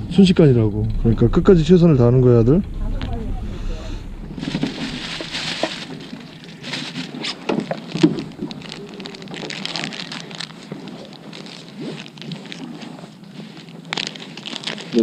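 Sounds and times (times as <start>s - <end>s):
low steady hum: 0.0s - 7.0s
plastic bag crinkling: 4.4s - 15.0s.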